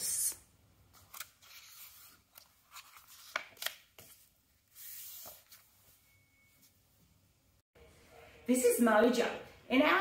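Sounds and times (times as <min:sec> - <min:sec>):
paper pages turning: 0:00.9 - 0:05.8.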